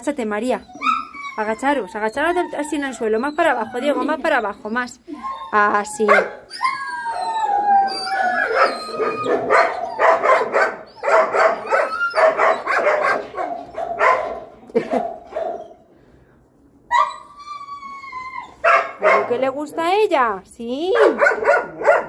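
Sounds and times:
dog whining and howling: 0.5s - 12.8s, 16.9s - 19.2s.

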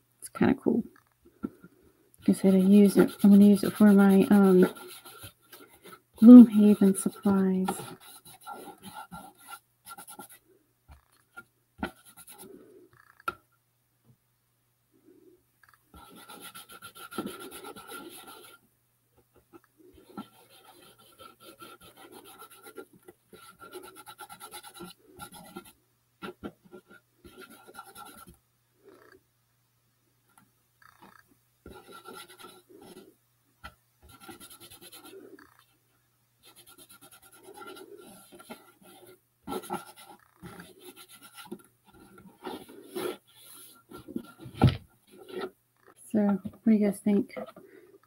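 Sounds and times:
paintbrush scrubbing on cardboard: 2.3s - 10.4s, 15.9s - 18.6s, 20.0s - 25.8s, 31.7s - 33.0s, 34.0s - 35.5s, 36.4s - 44.5s.

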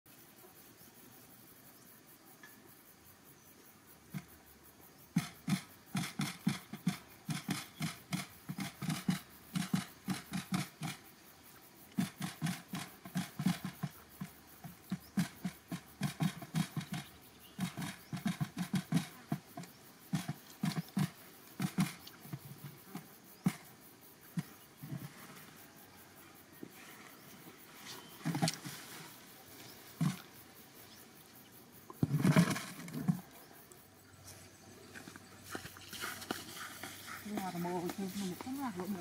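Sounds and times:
quail pecking rapid taps: 5.2s - 11.0s, 12.0s - 23.7s.

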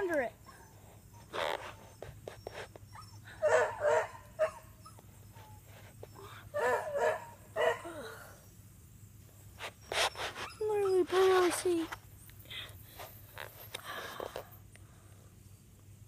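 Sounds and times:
dog barking: 3.4s - 4.7s, 6.6s - 7.9s.

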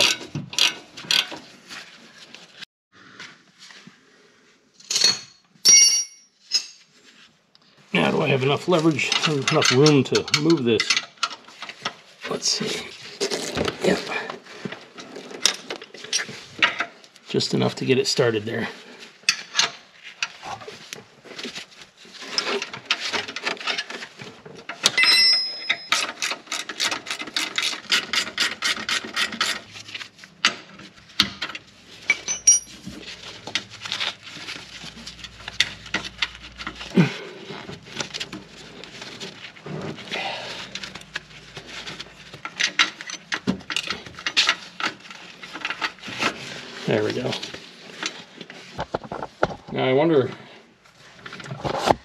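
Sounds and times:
metal clinks and taps: 25.0s - 26.1s, 32.1s - 32.8s.

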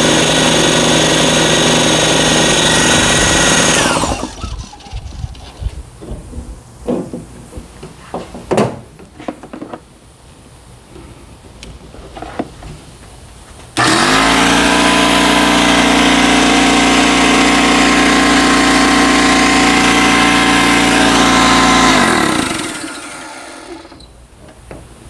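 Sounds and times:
air compressor motor humming: 0.0s - 4.8s, 13.8s - 24.0s
compressor winding down: 0.0s - 4.9s, 13.8s - 24.1s.

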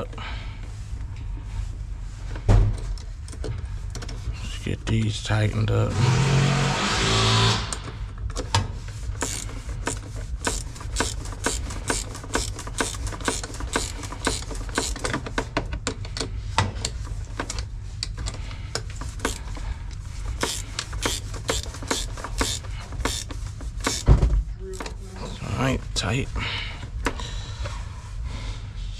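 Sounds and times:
low steady hum: 0.0s - 28.9s
ratchet wrench clicking: 9.2s - 15.2s, 19.2s - 19.4s, 20.4s - 24.1s.

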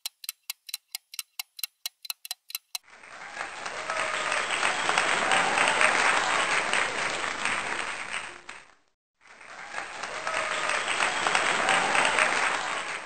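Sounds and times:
crowd applause: 2.8s - 13.0s.

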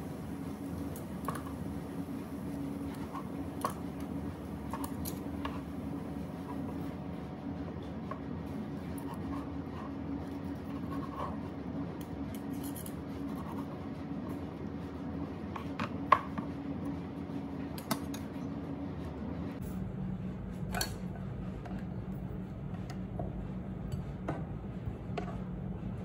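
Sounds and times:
steady low hum: 0.0s - 26.0s
knife scraping cutting board: 8.9s - 11.5s.

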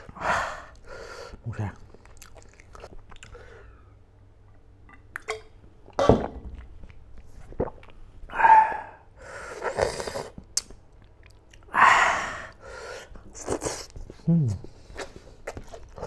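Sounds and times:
man chewing: 1.8s - 3.7s, 12.6s - 16.0s.

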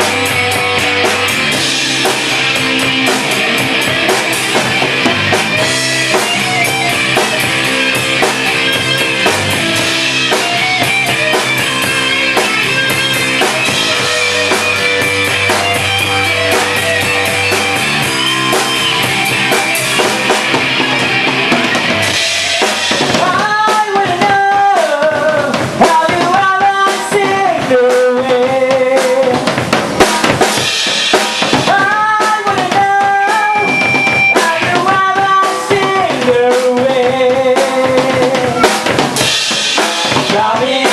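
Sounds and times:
guitar melody with bending notes: 0.0s - 23.6s, 33.2s - 34.8s, 38.1s - 40.2s
rock band playing live: 0.0s - 40.9s.

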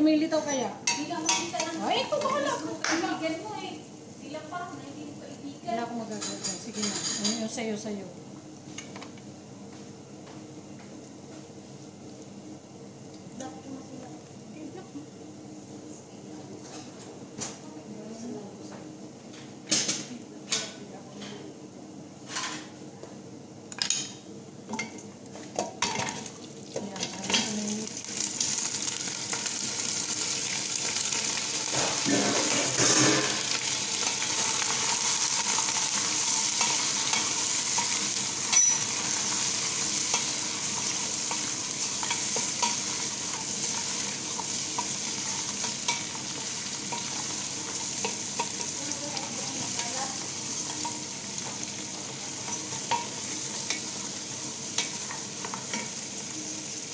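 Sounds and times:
meat sizzling in a pot: 0.0s - 10.1s, 23.7s - 56.9s.

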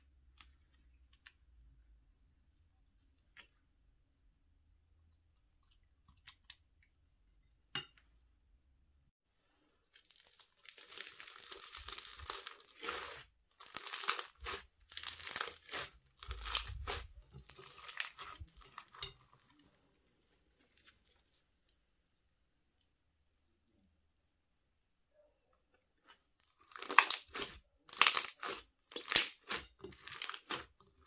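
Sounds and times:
bead slime crackling and crunching: 9.8s - 19.8s, 26.4s - 31.0s.

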